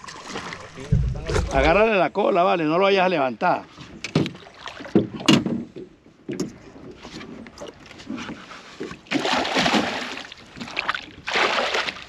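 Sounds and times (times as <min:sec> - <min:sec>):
water splashing against boat: 0:00.0 - 0:02.1, 0:03.7 - 0:12.0
knock: 0:00.9 - 0:01.8.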